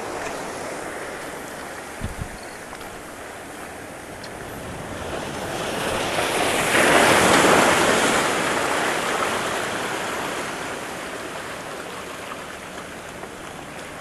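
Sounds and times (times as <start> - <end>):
wave breaking over boulders: 4.3 - 14.0.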